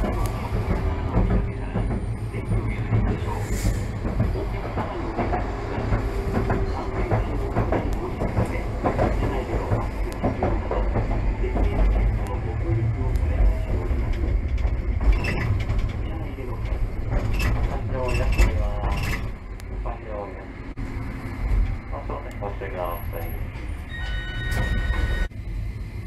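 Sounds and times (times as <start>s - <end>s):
wheels knocking on rails: 0.0s - 19.4s
streetcar low rumble: 0.0s - 26.0s.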